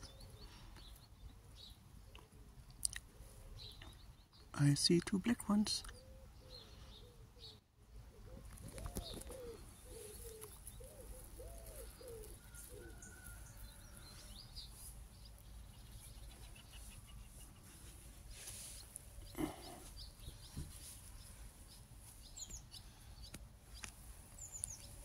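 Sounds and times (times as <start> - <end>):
small birds chirping faintly: 0.0 - 25.0
pigeon cooing: 5.9 - 13.4.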